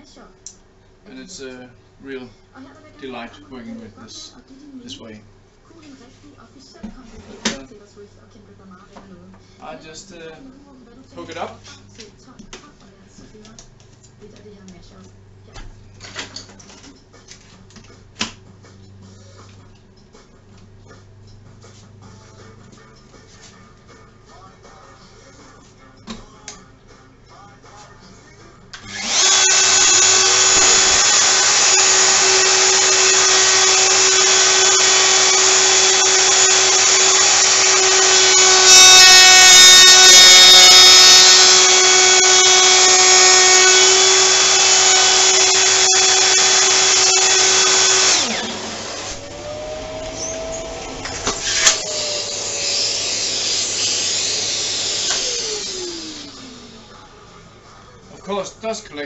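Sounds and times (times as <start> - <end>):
dust extractor suction: 28.8 - 56.8
router high whine: 28.8 - 57.0.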